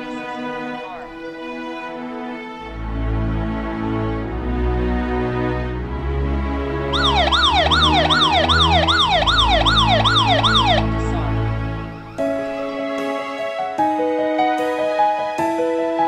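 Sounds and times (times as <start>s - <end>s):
background music: 0.0s - 16.0s
alarm siren wailing: 6.9s - 11.2s.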